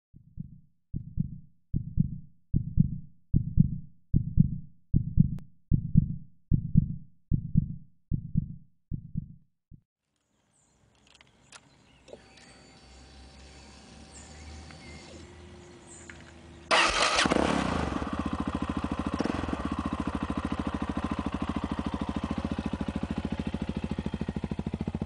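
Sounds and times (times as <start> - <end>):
low heartbeat thumps: 0.2 - 9.9.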